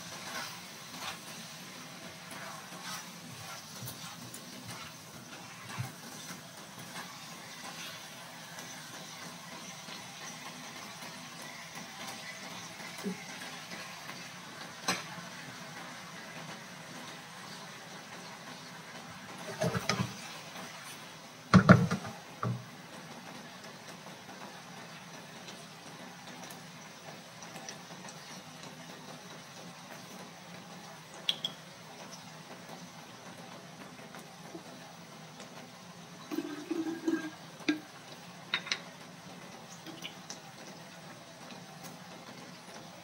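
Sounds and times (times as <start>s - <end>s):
faint sizzle in pan: 0.0s - 43.0s
skillet clattering on stove grate: 38.5s - 38.9s.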